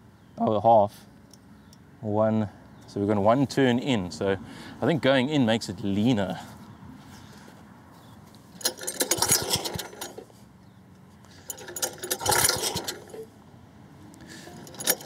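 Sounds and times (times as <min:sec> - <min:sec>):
recoil starter whirring: 0:08.6 - 0:10.4, 0:11.3 - 0:13.4, 0:14.3 - 0:15.0.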